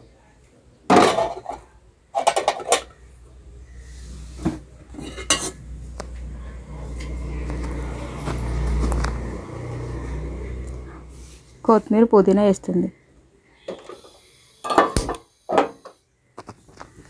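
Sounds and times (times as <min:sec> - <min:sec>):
spoon scraping metal pot: 0:04.9 - 0:05.6.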